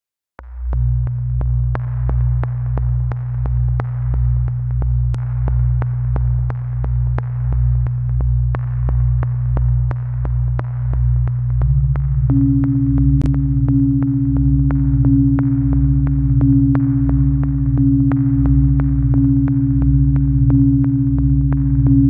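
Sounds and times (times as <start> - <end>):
pulsing bass: 0.4 - 22.0
low synth note: 12.3 - 22.0.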